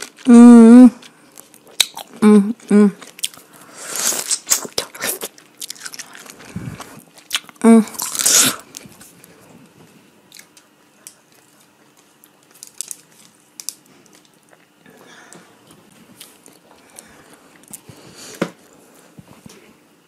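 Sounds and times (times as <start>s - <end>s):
person chewing pineapple: 0.0s - 9.4s, 10.2s - 14.8s, 15.6s - 18.1s.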